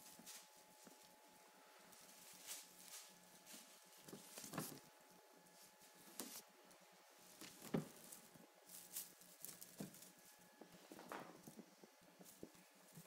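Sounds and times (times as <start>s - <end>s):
faint steady hum: 0.0s - 13.0s
soft taps and rustles: 2.0s - 4.9s, 6.0s - 6.5s, 7.4s - 13.0s.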